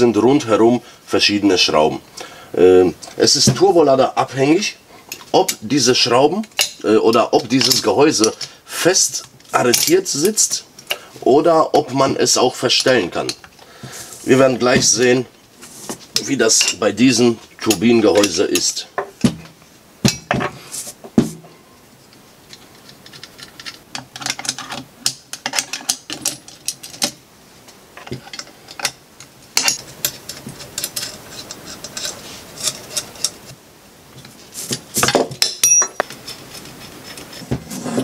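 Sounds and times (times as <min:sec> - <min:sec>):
spanner clinking on metal bolts: 0:06.4 - 0:08.5, 0:09.2 - 0:10.9, 0:23.0 - 0:27.2, 0:28.0 - 0:33.4, 0:35.0 - 0:36.1.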